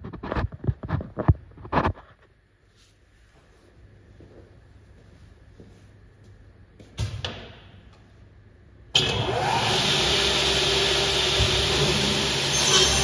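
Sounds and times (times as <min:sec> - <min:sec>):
mitre saw running: 0:09.0 - 0:13.0
saw motor whine: 0:09.0 - 0:13.0.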